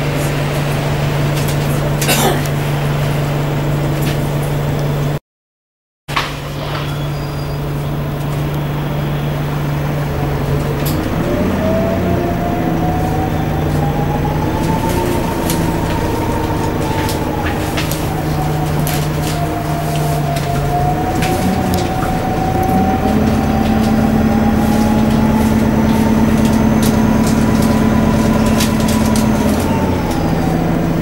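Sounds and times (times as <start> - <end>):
bus low hum: 0.0 - 5.2, 6.1 - 31.0
interior rattles clicking: 10.2 - 31.0
electric motor whine: 10.6 - 31.0.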